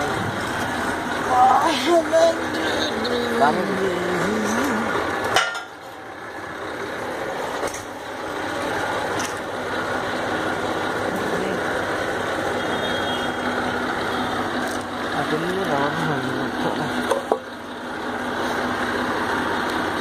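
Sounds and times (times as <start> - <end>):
farm machinery engine running: 0.0 - 20.0.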